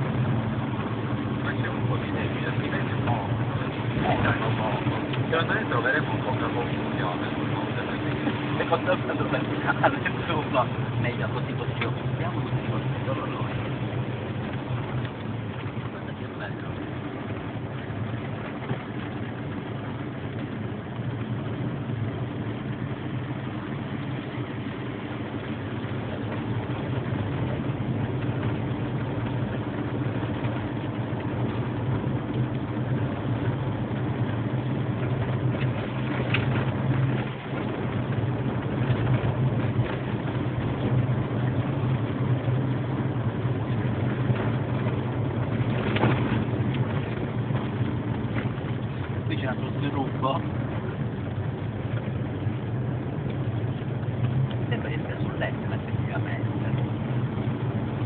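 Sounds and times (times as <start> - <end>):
car engine running: 0.0 - 58.0
road noise: 0.0 - 58.0.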